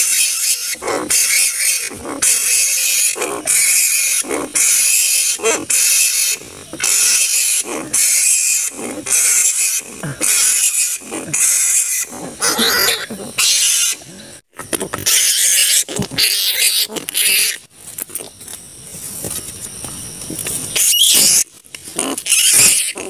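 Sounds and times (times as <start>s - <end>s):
flying foxes screeching: 0.0s - 14.0s, 20.7s - 23.0s.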